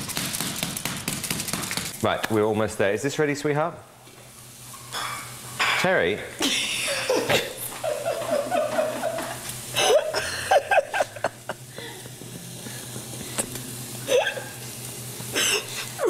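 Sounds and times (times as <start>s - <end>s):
steady low hum: 0.0s - 16.0s
people laughing: 6.4s - 12.1s.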